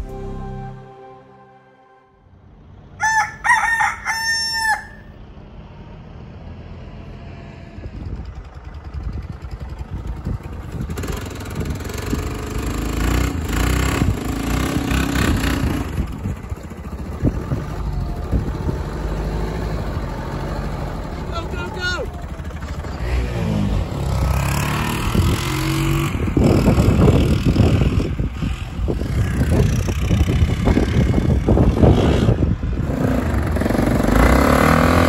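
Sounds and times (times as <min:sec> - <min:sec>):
rooster crowing: 0:03.0 - 0:05.2
quad bike engine running: 0:06.8 - 0:35.0.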